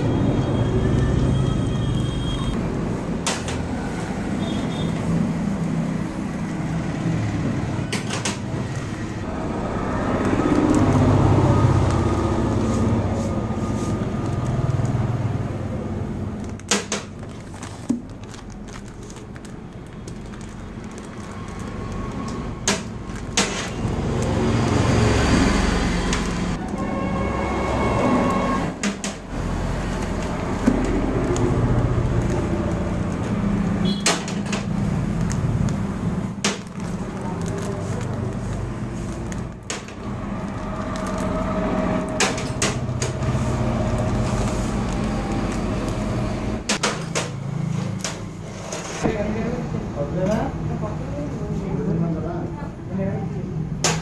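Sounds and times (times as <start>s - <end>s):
passing road traffic: 0.0s - 52.4s
plastic packaging crinkling: 8.7s - 26.8s, 29.3s - 34.0s, 34.6s - 46.6s.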